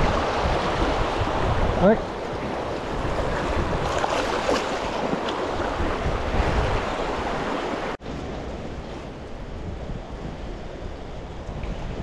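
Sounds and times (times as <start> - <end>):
stream rushing: 0.0 - 9.6
wind on microphone: 0.0 - 12.0
fish splashing in water: 3.4 - 6.0.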